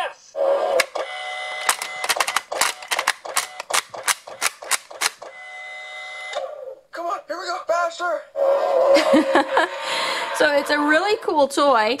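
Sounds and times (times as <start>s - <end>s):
toy car clicks and clatters: 1.6s - 5.2s.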